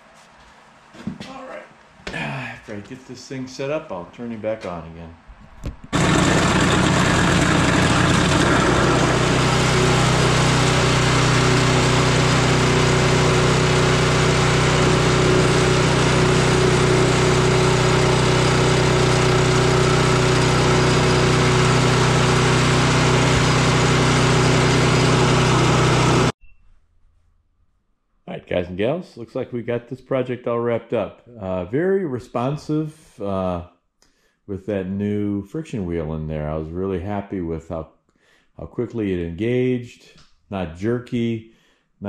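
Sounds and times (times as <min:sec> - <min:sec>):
snowblower engine running: 0:05.9 - 0:26.4.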